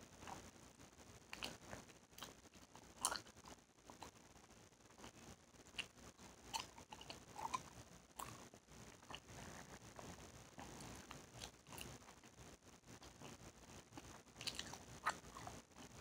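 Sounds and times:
chewing gum smacks and snaps: 1.3 - 1.6, 6.5 - 8.4, 13.2 - 15.6.

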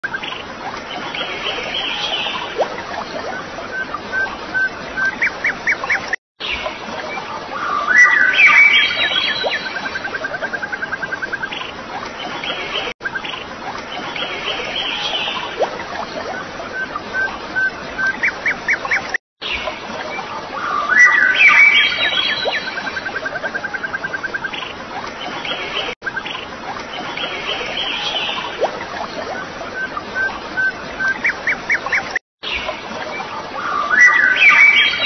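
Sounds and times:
birds chirping and calling: 0.1 - 28.6, 33.5 - 35.0.

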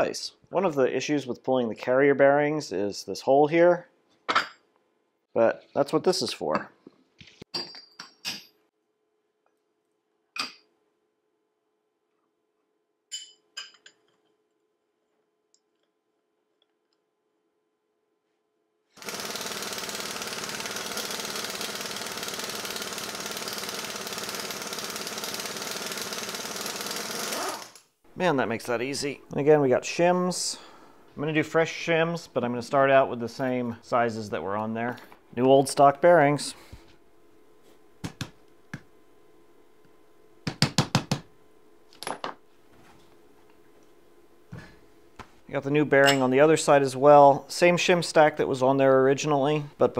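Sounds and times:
impact wrench hammering: 40.4 - 41.3.

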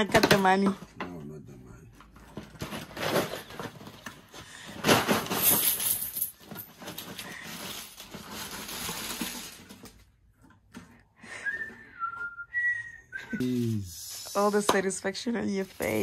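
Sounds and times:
plastic and paper crinkling: 2.0 - 5.8, 6.4 - 10.2, 15.0 - 16.0.

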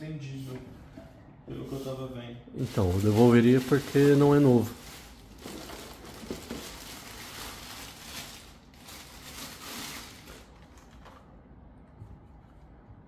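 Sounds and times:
rustling plastic packaging: 2.6 - 11.3.

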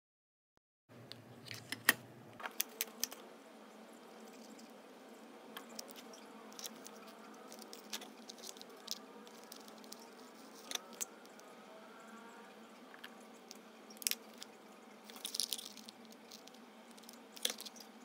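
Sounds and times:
faint steady hum: 0.9 - 18.0
small objects clicking and tapping: 5.6 - 11.5, 12.9 - 17.9.

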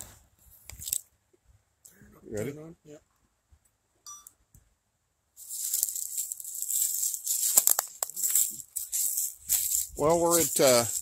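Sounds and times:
dry leaves crunching underfoot: 0.8 - 1.0, 5.4 - 11.0.

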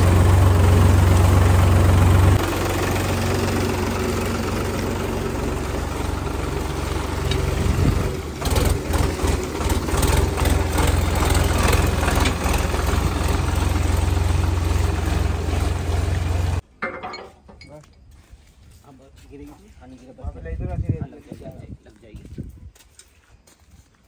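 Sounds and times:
tractor diesel engine running: 0.0 - 16.6
tractor driving through mud: 0.0 - 16.6.

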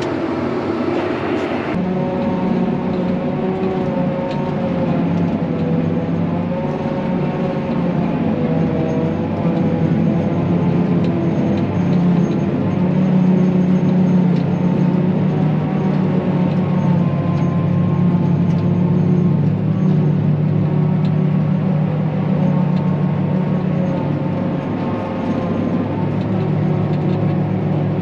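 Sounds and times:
tractor engine running: 0.0 - 28.0.

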